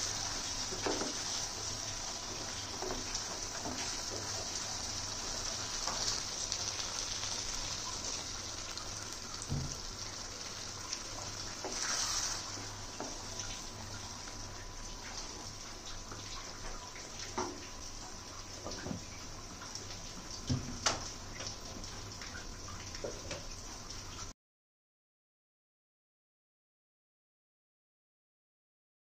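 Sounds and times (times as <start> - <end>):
curry sizzling in a pan: 0.0 - 24.3
wooden spatula scraping a pan: 11.6 - 12.5.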